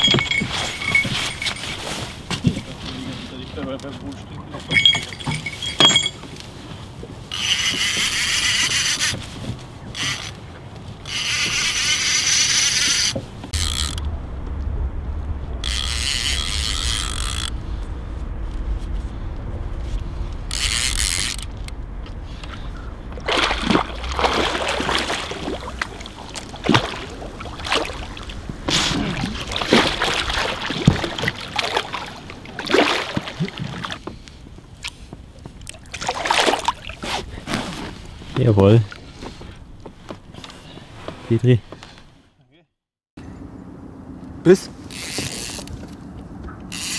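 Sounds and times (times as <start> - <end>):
fishing reel ratcheting: 7.3 - 9.1, 10.0 - 10.4, 11.0 - 14.0, 15.6 - 17.5, 20.5 - 21.7, 44.9 - 45.7
fish splashing: 20.5 - 38.2.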